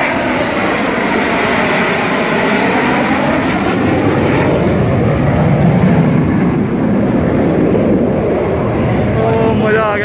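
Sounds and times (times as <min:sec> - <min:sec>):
fighter jet passing overhead: 0:00.0 - 0:10.0.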